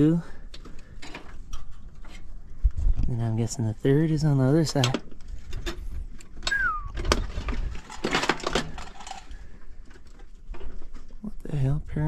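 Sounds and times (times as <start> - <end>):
clicks and scrapes: 4.8 - 11.2
short falling squeal: 6.5 - 7.0.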